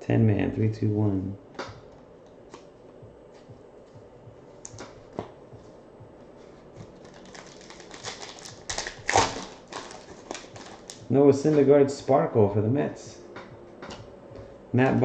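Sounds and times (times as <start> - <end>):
foil wrapper crinkling: 7.0 - 11.1.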